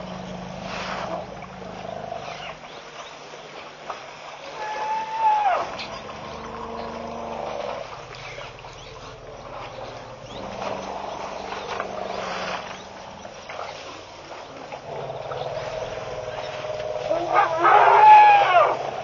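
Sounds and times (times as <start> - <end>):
elephants calling: 0.0 - 3.8, 4.4 - 19.0
elephants rumbling: 0.0 - 19.0
rustling and crackling: 5.6 - 19.0.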